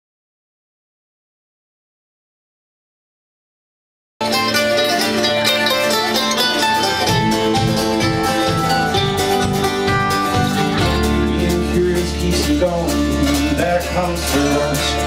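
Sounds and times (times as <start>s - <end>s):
drums: 4.2s - 15.0s
guitars and plucked strings: 4.2s - 15.0s
deep bass line: 5.6s - 15.0s.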